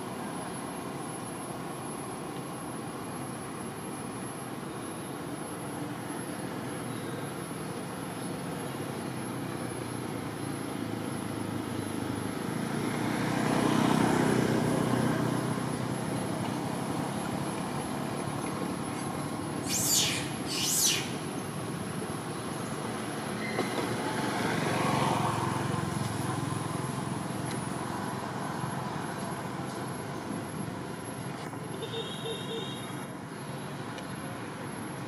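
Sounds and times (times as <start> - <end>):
road noise: 0.0 - 35.0
short high-pitched calls: 19.6 - 21.4
thin high whine: 19.6 - 21.6.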